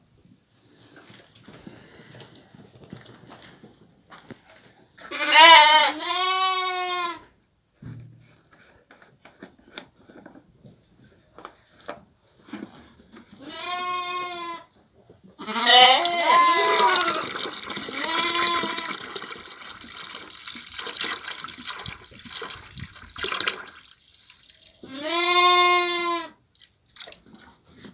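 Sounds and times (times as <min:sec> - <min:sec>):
faint clicks and shuffling: 0:00.0 - 0:05.1
lambs bleating: 0:05.1 - 0:07.2, 0:13.4 - 0:14.7, 0:15.4 - 0:17.3, 0:17.9 - 0:19.0, 0:24.9 - 0:26.4.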